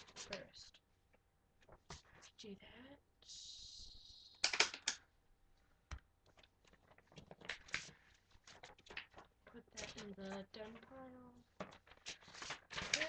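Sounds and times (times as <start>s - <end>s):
papers rustling: 1.6s - 2.3s, 6.2s - 13.0s.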